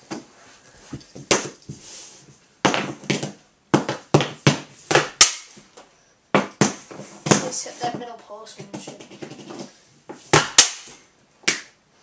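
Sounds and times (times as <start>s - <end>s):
hockey stick hitting puck: 2.6s - 5.7s, 6.4s - 11.7s.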